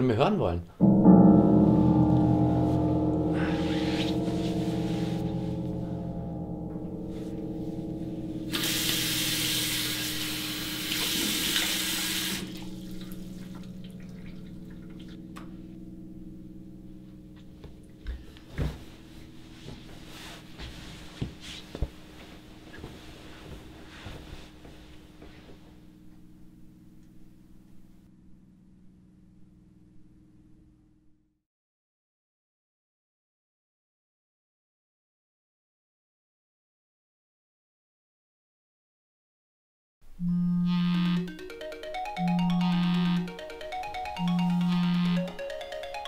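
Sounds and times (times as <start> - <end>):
low musical drone: 0.8 - 31.2, 40.2 - 46.0
tap running into sink: 8.5 - 14.2.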